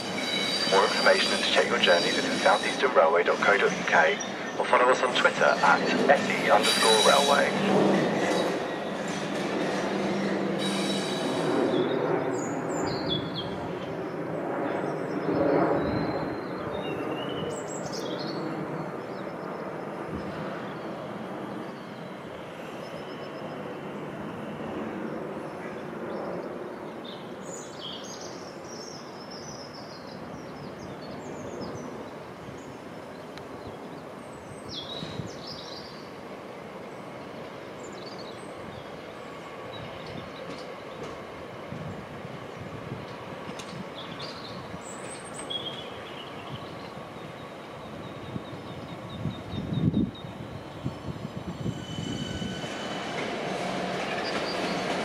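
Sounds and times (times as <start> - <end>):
train wheels rumbling on track: 0.0 - 14.1, 30.2 - 55.0
small birds chirping: 43.8 - 55.0.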